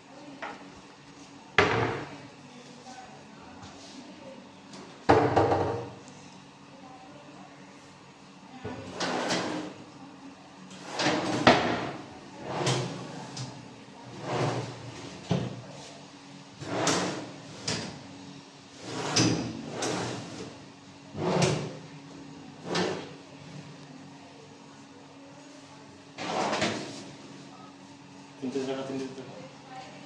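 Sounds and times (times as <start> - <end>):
drawers sliding open and shut: 8.8 - 9.8, 10.7 - 13.5, 14.1 - 15.4, 16.6 - 18.0, 18.8 - 20.6, 21.2 - 21.8, 22.6 - 23.2, 26.2 - 27.1.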